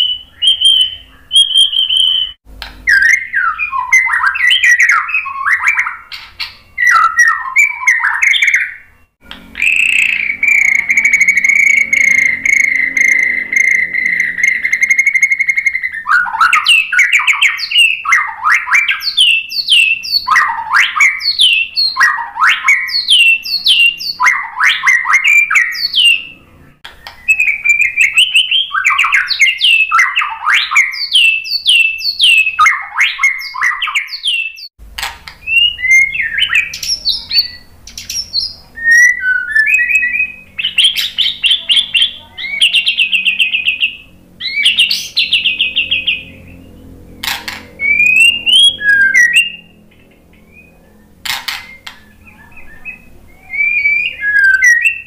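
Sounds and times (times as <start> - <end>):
bird singing: 0.0 - 55.0
faint low hum: 34.8 - 55.0.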